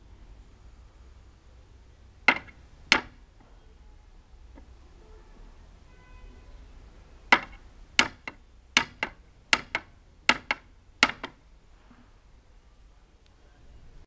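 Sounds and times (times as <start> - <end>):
hammer driving nail into wood: 2.3 - 3.2, 7.3 - 11.4.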